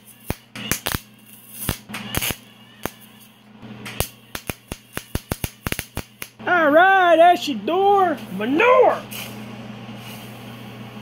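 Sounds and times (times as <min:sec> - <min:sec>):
welding arc crackling and popping: 0:00.0 - 0:06.6.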